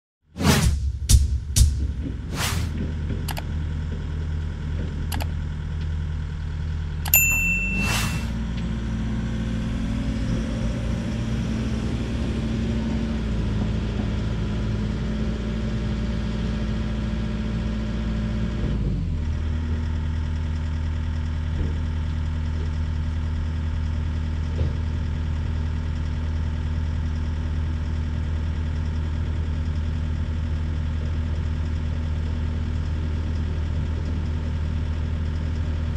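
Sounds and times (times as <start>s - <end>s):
excavator diesel engine: 2.0s - 35.9s
bell-like ding: 7.1s - 8.4s.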